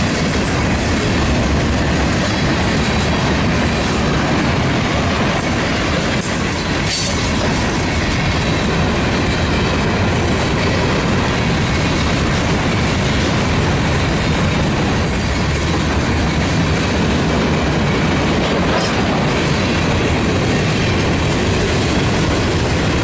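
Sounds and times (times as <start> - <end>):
train wheels clattering on rails: 0.0 - 23.0.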